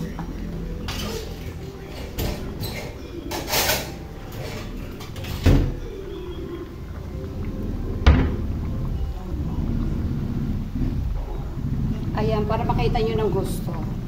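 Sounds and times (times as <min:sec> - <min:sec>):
steady low rumble: 0:05.7 - 0:14.0.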